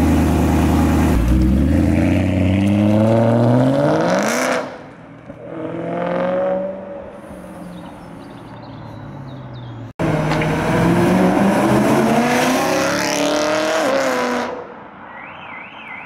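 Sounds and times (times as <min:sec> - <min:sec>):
car engine accelerating hard: 0:10.0 - 0:14.5.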